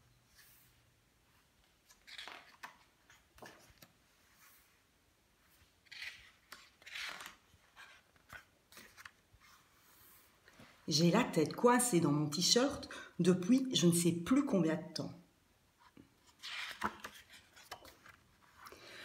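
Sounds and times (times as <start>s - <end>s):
book pages rustling: 0.3s - 10.9s, 15.8s - 19.0s.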